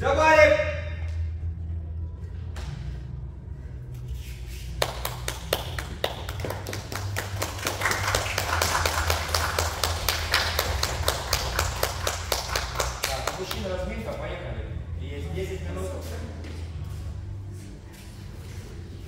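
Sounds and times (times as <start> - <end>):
people clapping: 4.7 - 14.1.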